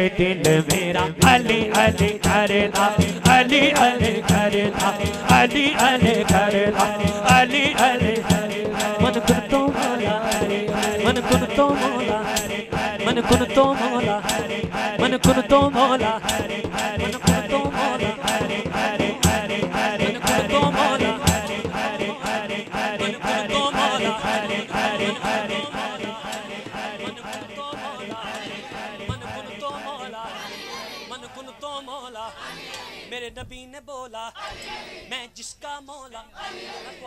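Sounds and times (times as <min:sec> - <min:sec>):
voices chanting: 0:00.0 - 0:33.2, 0:34.4 - 0:35.2, 0:36.4 - 0:37.0
rattling percussion beat: 0:00.4 - 0:30.0.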